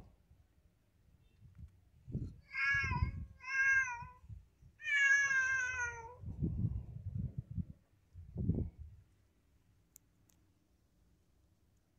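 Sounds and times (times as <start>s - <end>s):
cat meowing: 2.5s - 4.2s, 4.8s - 6.2s.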